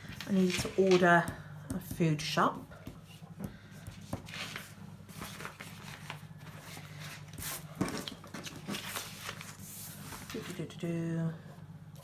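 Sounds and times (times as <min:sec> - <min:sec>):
paper rustling: 0:00.0 - 0:01.0, 0:04.1 - 0:10.7.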